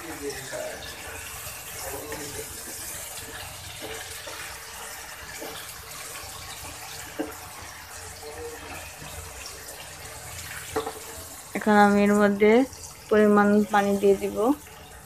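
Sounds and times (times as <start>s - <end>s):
vegetables sizzling in a wok: 0.0s - 15.0s
spatula knocking a pan: 1.0s - 9.8s, 10.6s - 11.2s.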